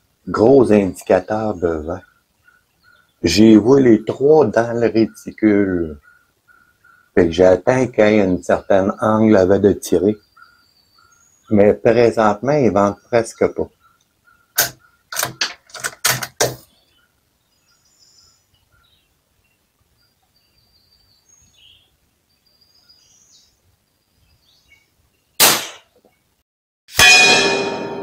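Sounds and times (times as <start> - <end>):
faint bird chirps: 0.3 - 15.1, 16.6 - 25.4
clicks and knocks: 14.6 - 16.7
rifle shot with echo: 25.4 - 25.9.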